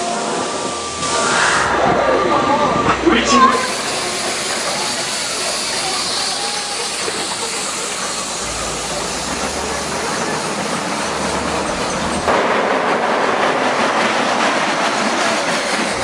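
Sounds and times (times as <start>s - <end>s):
roller coaster rumbling on track: 0.0s - 16.0s
wheels clattering on rail: 3.6s - 16.0s.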